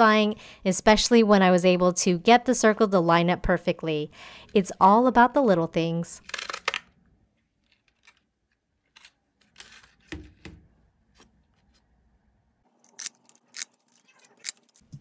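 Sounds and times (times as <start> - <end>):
paper rustling: 7.6 - 10.5.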